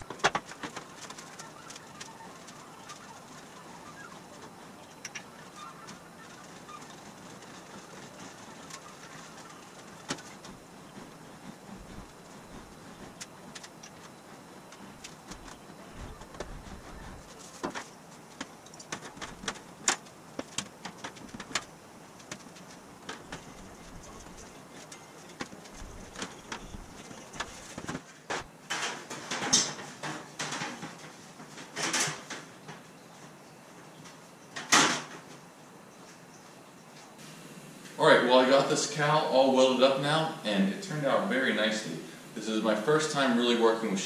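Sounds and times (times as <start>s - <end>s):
metal sheet clicks and rubbing: 0.0s - 32.4s
metal sheet rattling: 0.0s - 32.6s.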